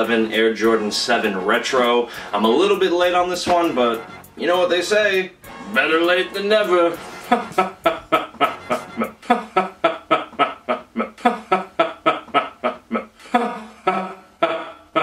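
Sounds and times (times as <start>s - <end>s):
man laughing: 7.1s - 15.0s.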